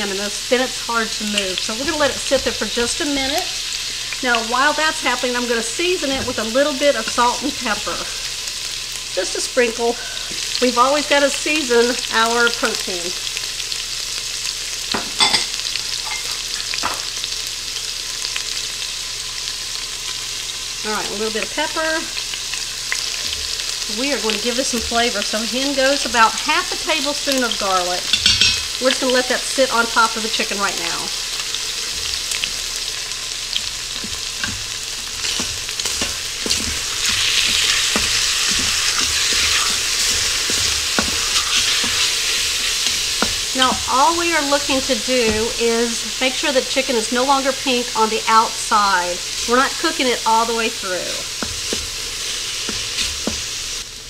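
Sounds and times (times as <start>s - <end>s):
chicken sizzling in hot oil: 0.0s - 54.0s
spatula knocking and scraping pot: 33.6s - 43.9s.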